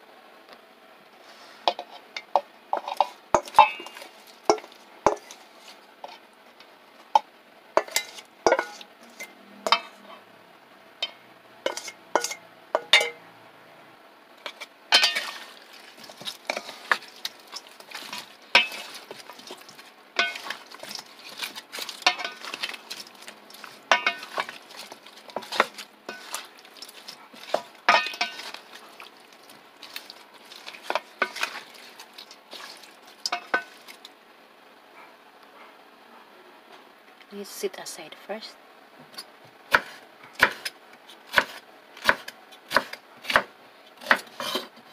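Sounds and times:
spatula clinking in metal bowl: 2.2s - 5.4s, 7.8s - 10.0s, 11.0s - 13.2s, 14.5s - 34.0s.

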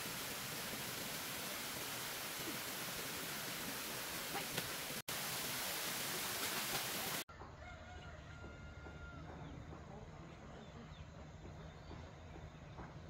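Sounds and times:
rushing water: 0.0s - 7.3s
rooster crowing faintly: 7.3s - 9.6s.

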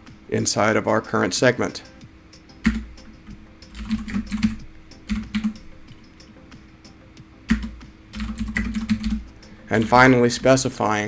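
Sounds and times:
computer keyboard typing: 2.6s - 3.0s, 3.6s - 5.7s, 7.5s - 10.1s.

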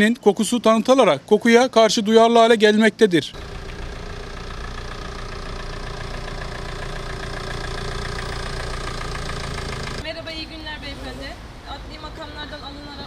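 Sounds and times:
van engine humming: 3.3s - 10.5s.

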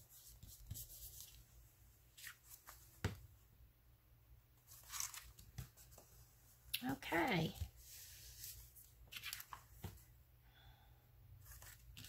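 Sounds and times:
paper rustling: 4.6s - 6.2s, 7.6s - 10.1s, 11.4s - 12.0s.

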